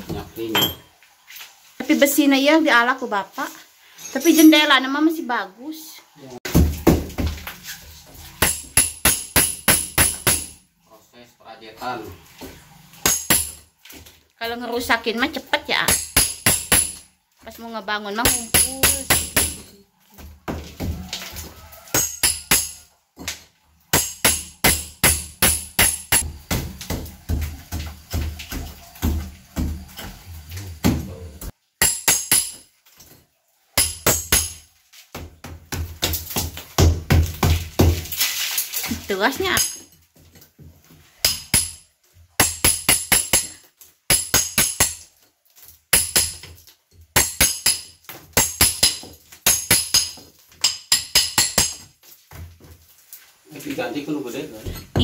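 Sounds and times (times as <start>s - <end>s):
hammer striking steel chisel: 8.4s - 10.6s, 13.0s - 13.6s, 18.3s - 19.8s, 21.9s - 27.1s, 31.8s - 32.6s, 33.8s - 34.6s, 41.2s - 41.8s.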